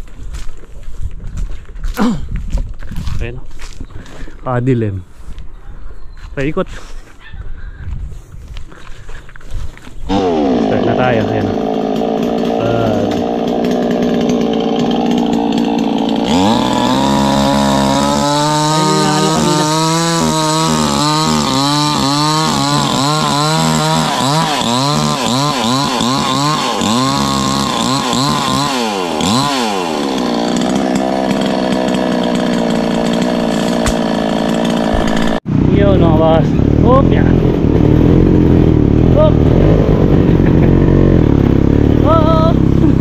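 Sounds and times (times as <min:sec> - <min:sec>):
chainsaw cutting wood: 0:10.0 - 0:35.7, 0:36.6 - 0:43.0.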